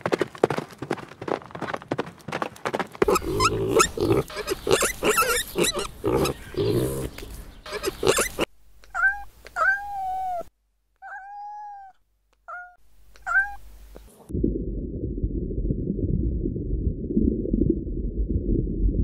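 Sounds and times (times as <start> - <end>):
cat meowing: 7.7 - 13.6
steady low rumbling: 13.7 - 19.0.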